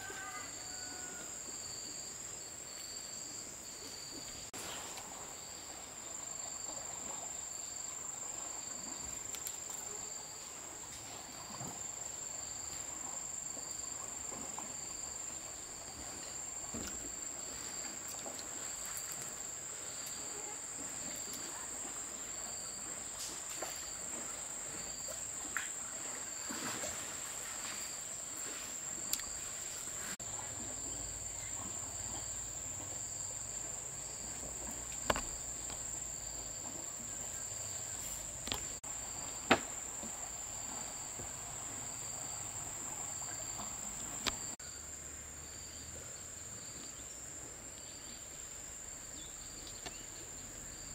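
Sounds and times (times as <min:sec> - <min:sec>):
insect high-pitched trill: 0:00.0 - 0:04.5
insect chirping in pulses: 0:11.8 - 0:50.9.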